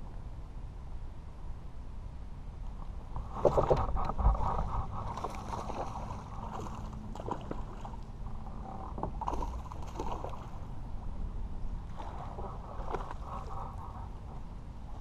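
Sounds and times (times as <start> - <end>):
wind rumble on microphone: 0.0 - 15.0
water splashing: 3.2 - 10.7.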